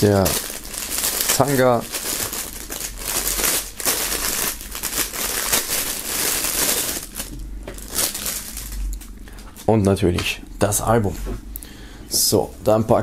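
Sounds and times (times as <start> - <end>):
plastic bag crinkling and tearing: 0.0 - 9.7.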